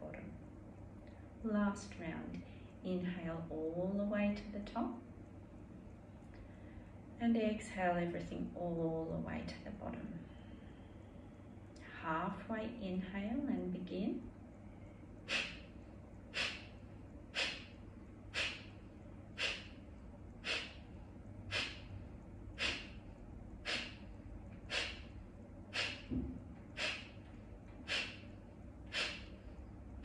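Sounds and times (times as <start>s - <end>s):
quiet inhale: 2.4s - 2.8s, 6.2s - 7.2s, 10.1s - 11.9s, 14.6s - 26.1s, 26.7s - 29.8s
woman's forceful nasal exhales: 15.2s - 18.8s, 19.4s - 19.8s, 20.4s - 20.8s, 21.5s - 22.0s, 22.6s - 23.0s, 23.6s - 27.2s, 27.8s - 28.3s, 28.9s - 29.5s.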